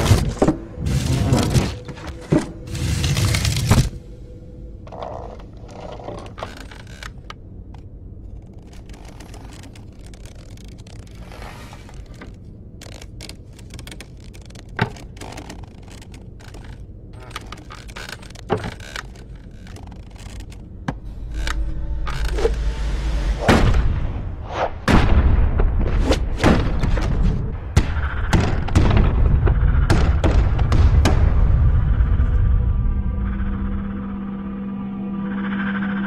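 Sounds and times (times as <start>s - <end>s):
low steady hum: 0.0s - 36.0s
small wooden clicks: 4.8s - 22.6s.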